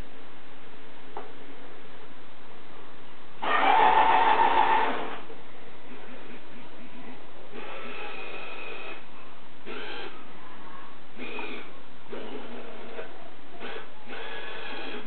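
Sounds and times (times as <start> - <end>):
small electric motors whirring: 9.6 - 10.2.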